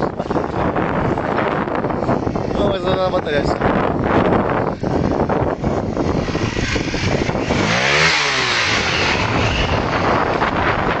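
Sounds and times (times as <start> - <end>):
motorcycle riding past: 4.9 - 11.0.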